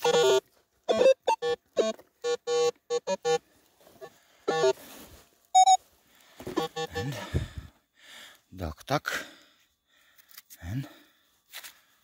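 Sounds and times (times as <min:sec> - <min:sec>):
metal detector beeps: 0:00.0 - 0:03.4, 0:04.0 - 0:04.8, 0:05.5 - 0:05.8, 0:06.5 - 0:07.2.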